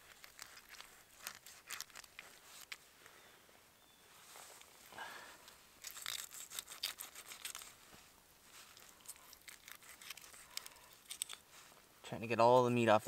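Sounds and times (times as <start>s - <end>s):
knife scraping fish: 5.8s - 7.7s, 9.0s - 11.4s.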